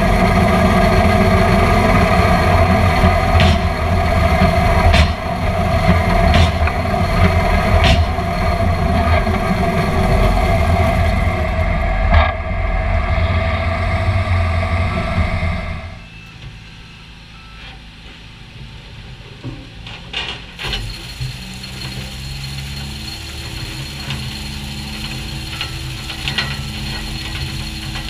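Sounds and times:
diesel engine running under load: 0.0 - 28.0
sharp knocks from drilling rig: 3.0 - 9.4.

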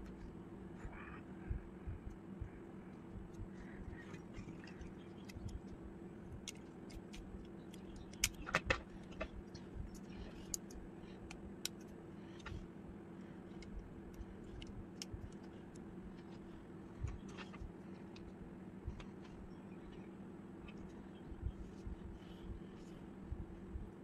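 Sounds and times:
steady low hum: 0.0 - 24.0
plastic snaps: 6.4 - 9.3.

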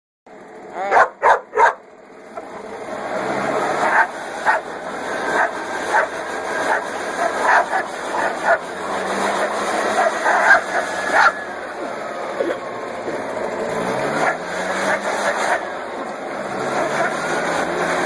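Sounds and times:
dog barking: 0.8 - 1.8, 3.8 - 4.7, 5.3 - 8.7, 9.9 - 11.4
leaf blower running: 1.5 - 18.0.

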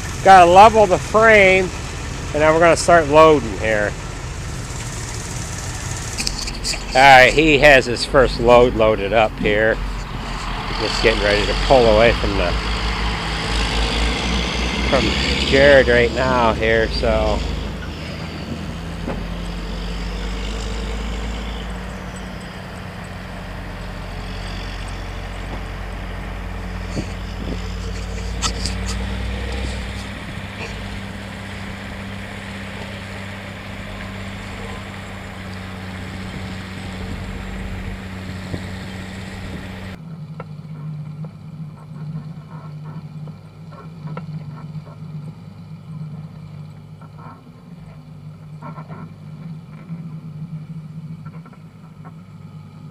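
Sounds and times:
tractor diesel engine running: 0.0 - 52.9
wind on microphone: 25.5 - 32.6.

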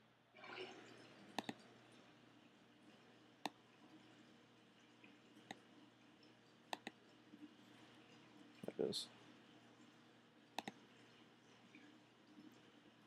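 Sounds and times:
computer mouse clicks: 1.4 - 1.6, 5.4 - 5.6, 6.7 - 7.0, 10.6 - 10.8.

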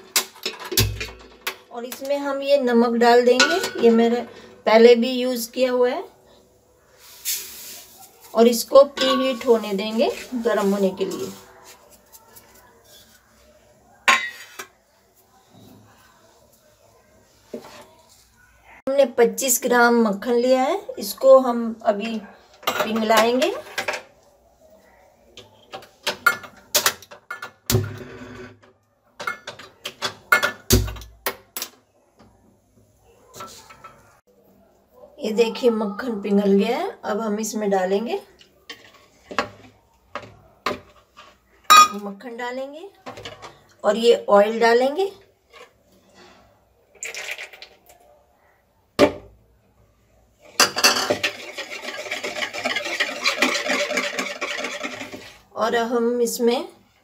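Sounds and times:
whisk beating in a plastic bowl: 51.2 - 55.4.

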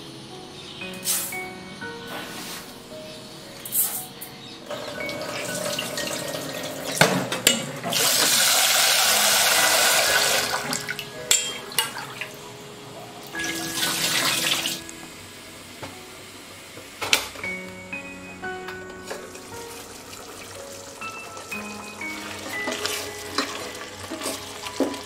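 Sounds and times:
tap water running into steel bowl: 4.7 - 12.2.

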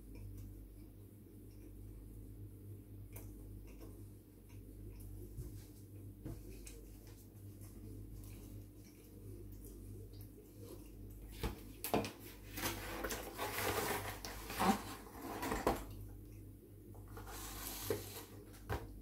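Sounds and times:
cardboard box scraping and rustling: 12.6 - 15.8.

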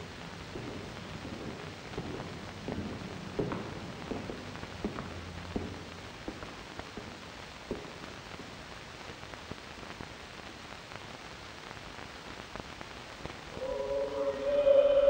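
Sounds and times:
film soundtrack hiss: 0.0 - 15.0
choir singing held note: 13.5 - 15.0.

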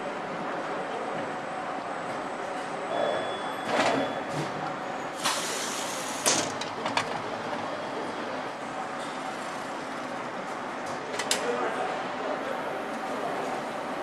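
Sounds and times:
hiss: 5.2 - 6.4.

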